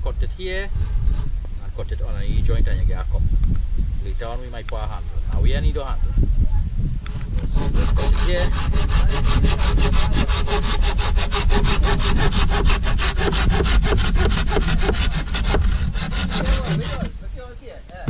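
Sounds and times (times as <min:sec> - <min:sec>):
hand saw cutting bamboo: 0:07.2 - 0:17.2.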